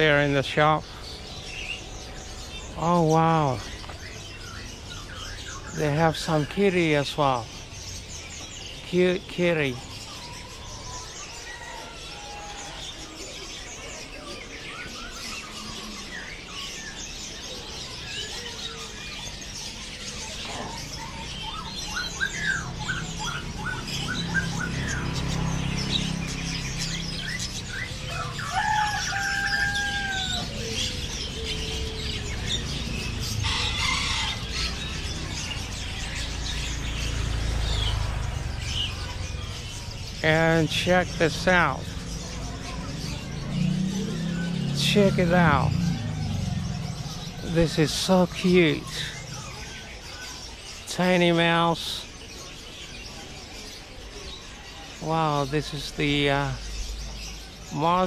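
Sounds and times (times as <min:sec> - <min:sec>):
caged birds chirping: 0:00.0 - 0:58.0
whistled bird calls: 0:09.7 - 0:36.8.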